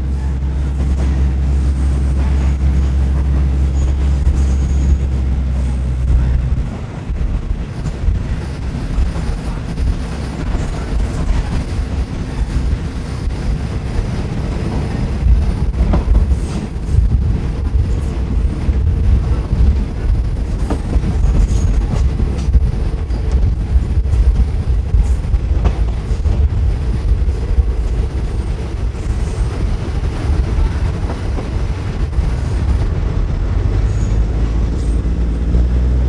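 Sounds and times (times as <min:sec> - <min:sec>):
train low rumble: 0:00.0 - 0:36.0
train wheels clicking: 0:07.2 - 0:35.7.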